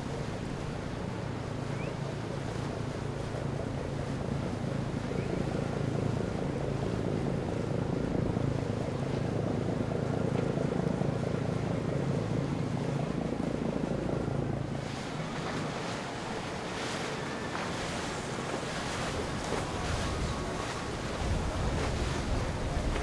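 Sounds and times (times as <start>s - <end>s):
boat engine humming: 0.0s - 23.0s
wind: 0.0s - 23.0s
water splashing: 14.6s - 23.0s.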